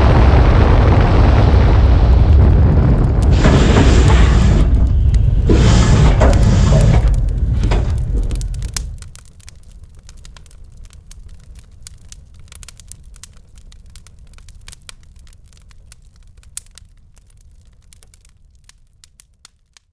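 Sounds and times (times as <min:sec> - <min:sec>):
roller coaster train rumbling: 0:00.0 - 0:09.0.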